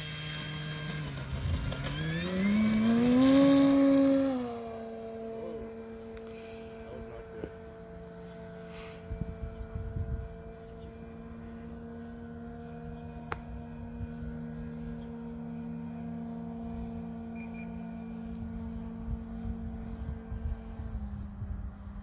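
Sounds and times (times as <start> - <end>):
model plane motor humming: 0.0 - 22.0
wind rumbling on microphone: 8.9 - 11.9, 18.1 - 22.0.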